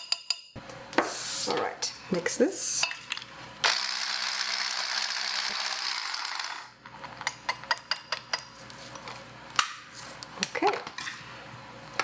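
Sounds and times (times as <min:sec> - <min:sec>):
immersion blender motor whirring: 0:03.6 - 0:06.7.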